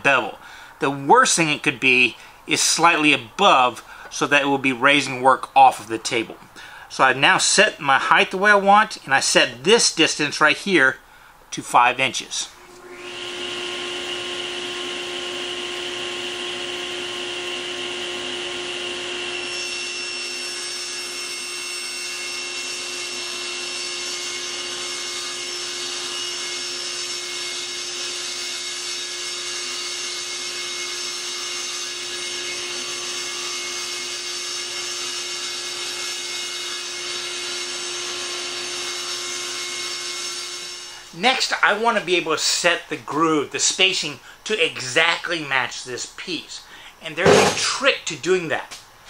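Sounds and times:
table saw cutting plywood: 12.6 - 41.6, 47.2 - 47.7.

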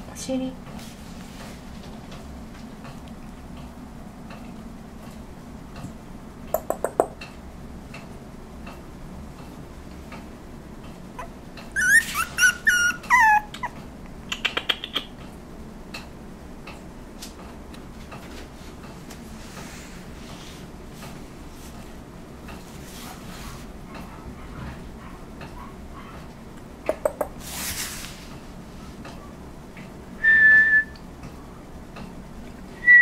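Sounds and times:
puppy whimpering and whining: 11.2 - 13.8
puppy yelping: 11.2 - 13.8, 25.0 - 26.2.

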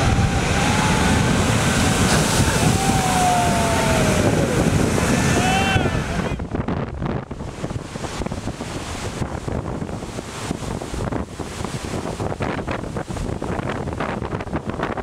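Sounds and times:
surf breaking over rocks: 0.0 - 15.0
wind gusting on microphone: 0.0 - 15.0.

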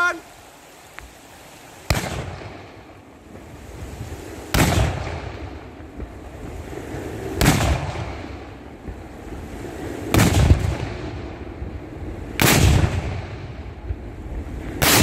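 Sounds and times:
black powder salute shots: 1.8 - 2.8, 4.4 - 5.5, 7.4 - 8.3, 12.4 - 13.4, 14.8 - 15.0.

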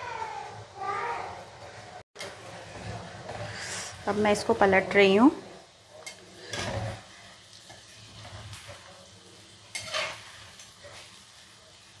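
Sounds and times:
batter balls sizzling in oil: 0.0 - 12.0
metal spoon scraping a pan: 2.2 - 4.6, 6.0 - 8.9, 9.6 - 11.3.

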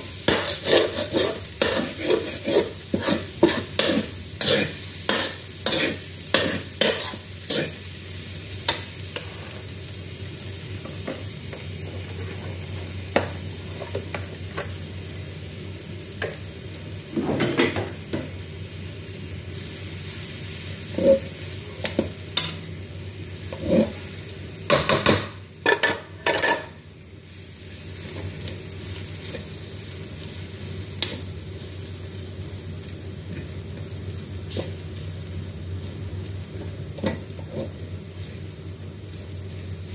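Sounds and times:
spatulas scraping a wok: 0.0 - 7.8, 8.7 - 9.7, 20.8 - 22.1, 23.5 - 24.1, 36.9 - 37.9
rice sizzling in a wok: 0.0 - 39.9.

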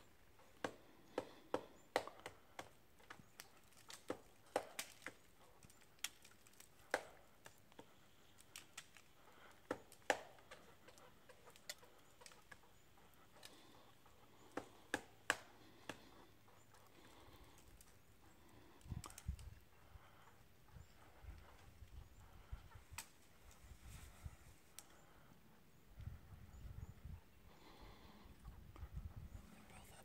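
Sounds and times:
woodpecker pecking wood: 0.2 - 23.3.

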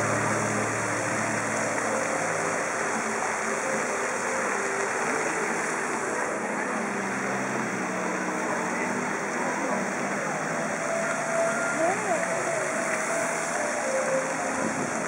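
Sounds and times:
fountain splashing: 0.0 - 15.0
people's voices: 4.9 - 15.0.

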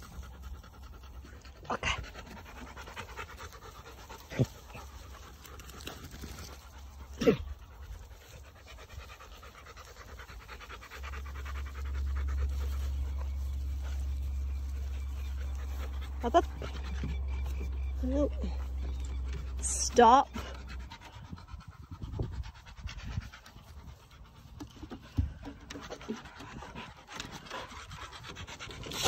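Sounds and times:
dog panting hard: 0.0 - 5.5, 6.8 - 29.0
steady low rumble: 6.4 - 24.6.

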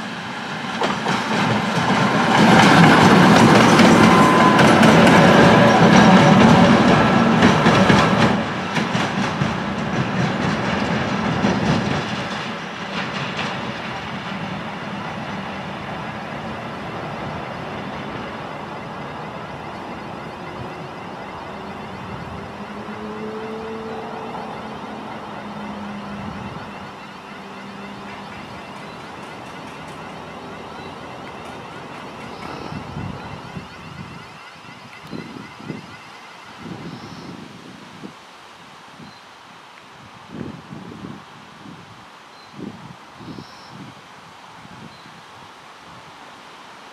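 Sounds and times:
diesel locomotive engine: 0.0 - 37.4.

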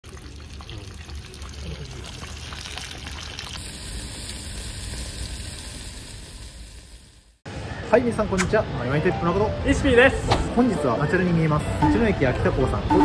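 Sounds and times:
food deep-frying in hot oil: 0.0 - 7.4
shellfish sizzling on a grill: 0.7 - 7.4.

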